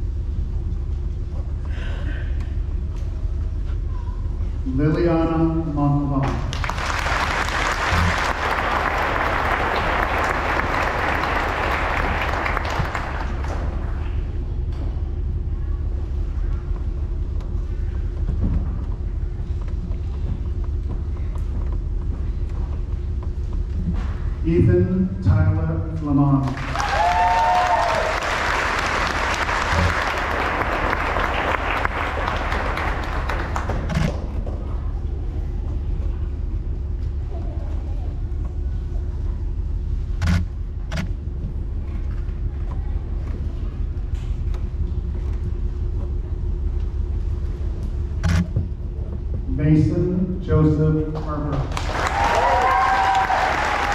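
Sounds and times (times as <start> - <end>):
low steady hum: 0.0 - 53.9
low steady rumble: 0.0 - 53.9
audience clapping: 6.2 - 14.4, 26.4 - 34.8, 51.1 - 53.9.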